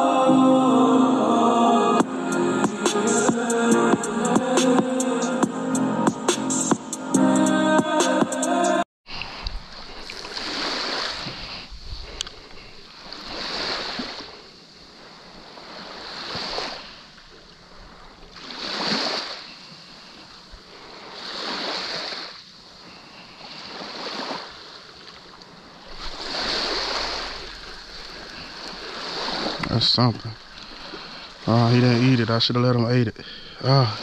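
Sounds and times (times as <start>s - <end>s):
small waves washing on sand: 9.1s - 32.5s.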